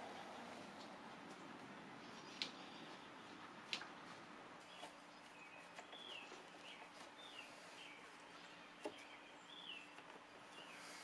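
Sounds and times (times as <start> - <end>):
faint clicks: 2.3 - 2.6.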